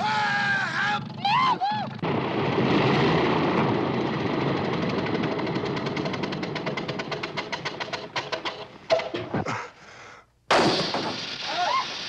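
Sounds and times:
propeller plane engine: 3.0s - 8.6s.

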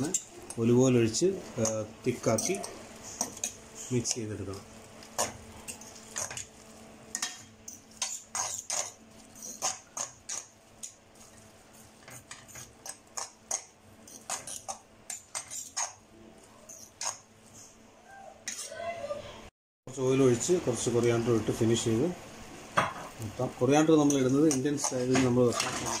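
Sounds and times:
utensil scraping metal pan: 24.1s - 26.0s.

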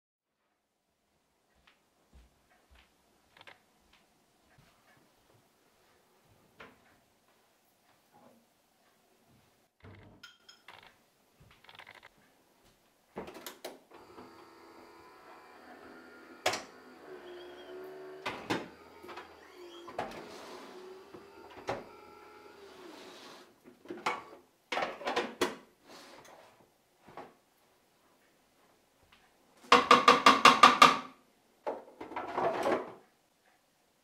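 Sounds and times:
cupboard doors and crockery knocks: 29.6s - 33.0s.

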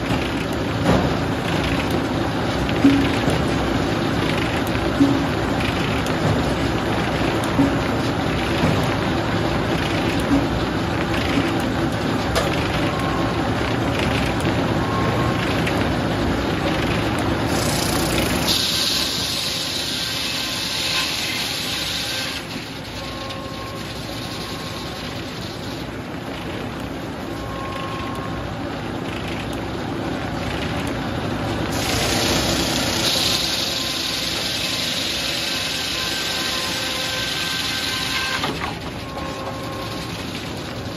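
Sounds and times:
hiss: 17.5s - 22.4s, 31.8s - 35.9s.

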